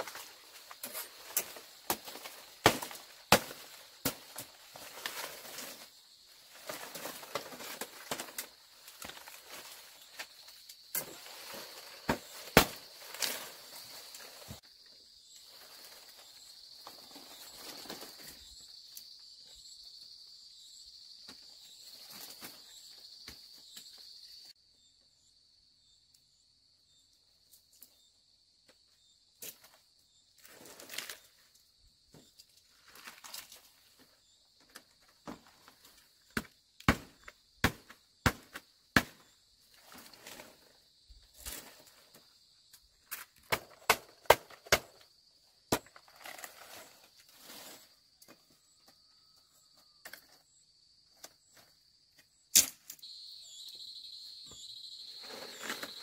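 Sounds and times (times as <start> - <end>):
bamboo knocking and clattering: 0.0 - 5.9, 6.5 - 13.5
insects droning: 0.0 - 56.0.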